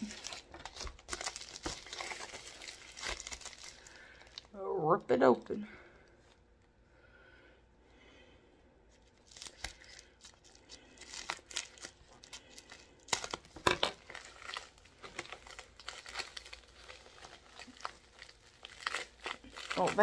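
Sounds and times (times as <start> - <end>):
plastic wrapping crinkling and tearing: 0.0 - 4.6, 8.9 - 20.0.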